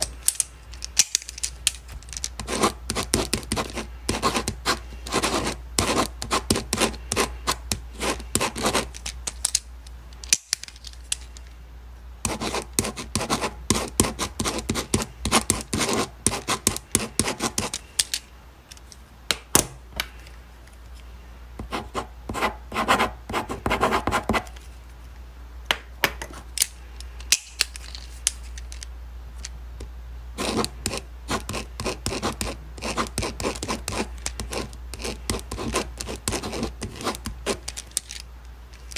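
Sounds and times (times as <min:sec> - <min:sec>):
steady low hum: 0:00.0 - 0:38.9
pen scratching on paper: 0:02.4 - 0:08.9, 0:12.2 - 0:17.8, 0:21.6 - 0:24.5, 0:30.4 - 0:37.6.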